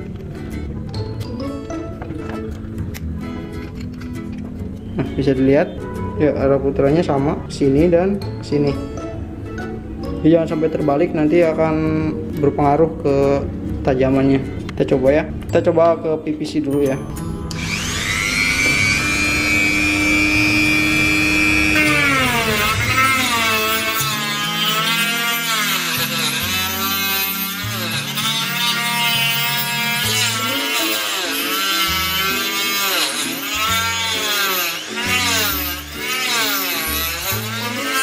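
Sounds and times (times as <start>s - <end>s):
grinder saw blade whining: 17.4s - 38.0s
saw blade cutting plastic pipe: 17.5s - 38.0s.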